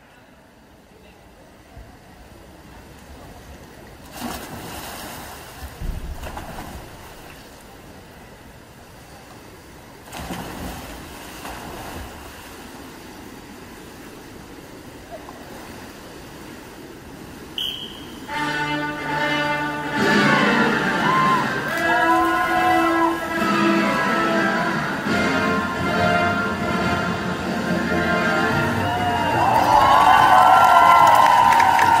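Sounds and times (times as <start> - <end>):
crowd noise in pool hall: 0.0 - 4.0, 13.1 - 32.0
swimmers splashing into pool: 4.0 - 7.8, 10.0 - 13.2, 17.6 - 27.0, 27.8 - 32.0.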